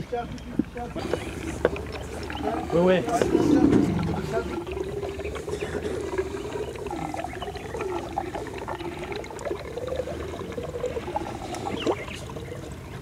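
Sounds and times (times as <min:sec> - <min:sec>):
wet clicks: 0:00.3 - 0:09.8
baby elephant suckling from a bottle: 0:00.6 - 0:13.0.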